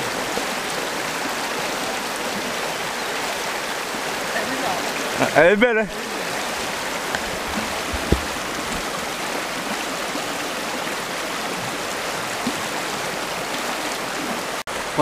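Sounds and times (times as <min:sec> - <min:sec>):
river water rushing over riffles: 0:00.0 - 0:15.0.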